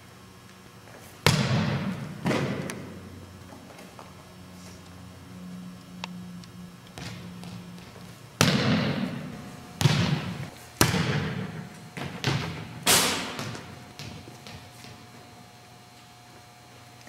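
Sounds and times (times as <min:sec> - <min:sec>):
volleyball slapping and bouncing: 0:01.2 - 0:03.1, 0:07.0 - 0:15.2.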